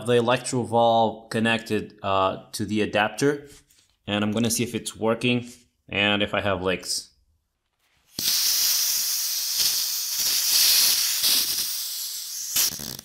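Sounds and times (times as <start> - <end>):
gas hissing from a valve: 8.1 - 13.0.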